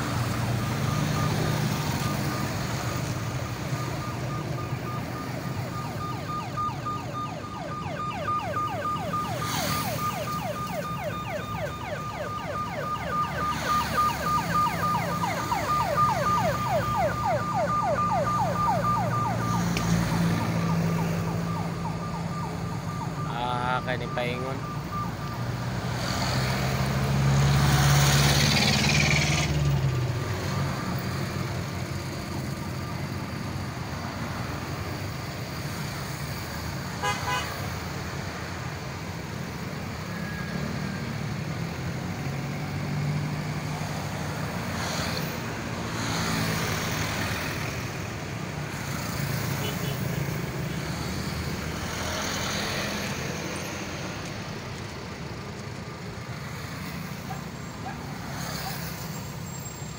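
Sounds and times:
vehicles driving past: 0.0 - 59.9
horn toots: 37.0 - 37.6.

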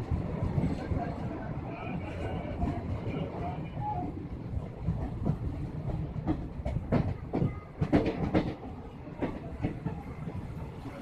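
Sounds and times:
train rumbling on track: 0.0 - 11.0
wheels clacking over rail joints: 4.0 - 10.8.

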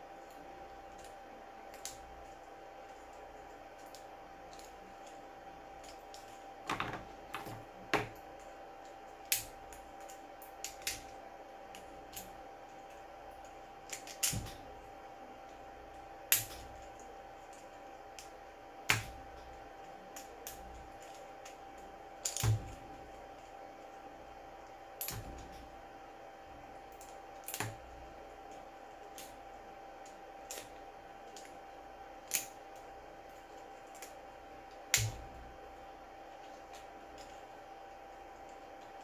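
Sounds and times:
faint steady hum: 0.0 - 39.0.

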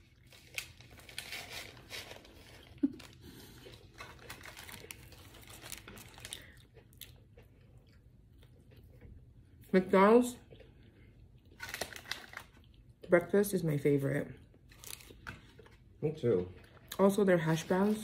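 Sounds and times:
paper wrapper crinkling: 0.0 - 6.6, 11.6 - 12.7, 14.7 - 15.8
close-up chewing: 1.8 - 9.7, 10.4 - 13.1, 14.4 - 16.0.

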